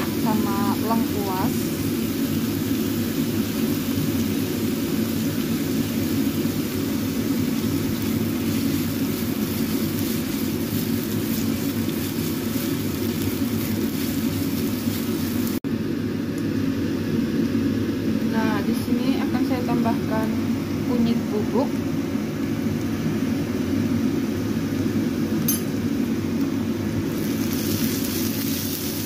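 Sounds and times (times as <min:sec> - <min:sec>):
aromatics sizzling in a wok: 0:00.0 - 0:29.0
extractor fan drone: 0:00.0 - 0:29.0
spatula stirring in a wok: 0:05.4 - 0:15.6.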